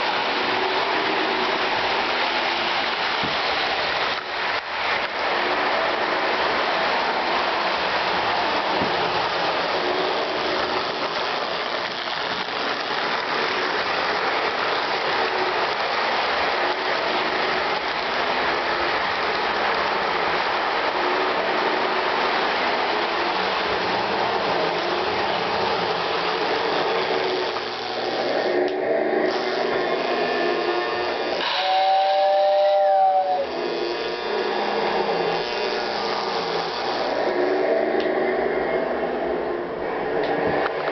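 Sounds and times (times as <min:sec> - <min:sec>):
toy train clattering on track: 0:08.0 - 0:21.1.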